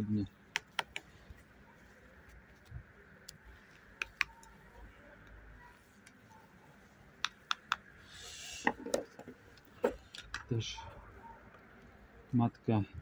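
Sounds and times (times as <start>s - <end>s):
wooden sticks clicking: 0.5s - 1.1s, 2.6s - 4.6s, 7.2s - 7.9s.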